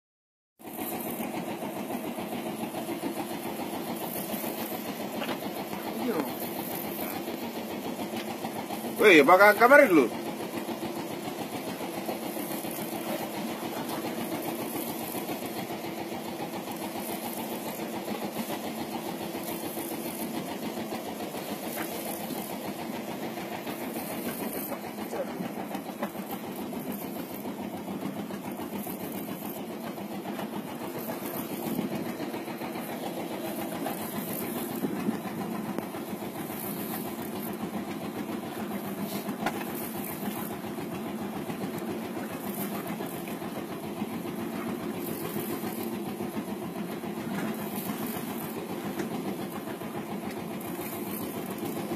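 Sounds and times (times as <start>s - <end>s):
boat motor idling: 0.6s - 51.9s.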